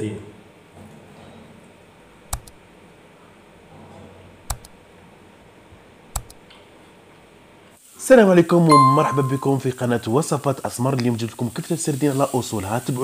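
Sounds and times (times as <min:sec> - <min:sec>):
computer mouse double clicks: 0:02.3 - 0:02.6, 0:04.5 - 0:04.8, 0:06.1 - 0:06.4.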